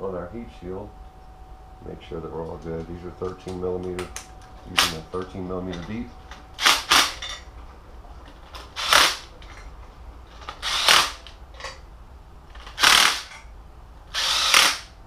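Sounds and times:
impact driver hammering: 0:06.6 - 0:07.3, 0:10.6 - 0:11.3, 0:12.6 - 0:13.4, 0:14.2 - 0:14.9.

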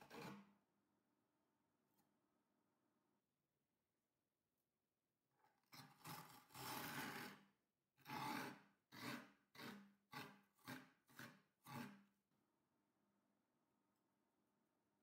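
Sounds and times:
metal scoop scraping frozen mixture: 0:05.8 - 0:12.0.

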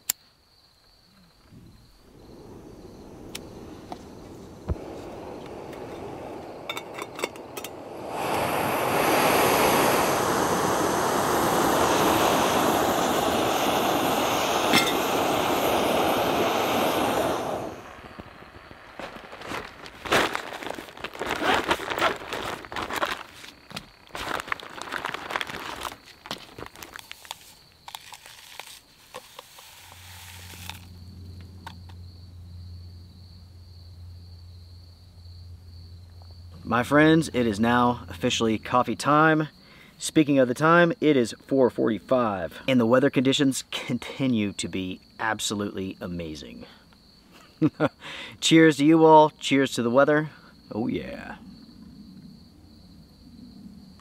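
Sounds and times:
steady rushing hiss: 0:01.4 - 0:31.9
stuff sack crinkling: 0:18.8 - 0:31.0.

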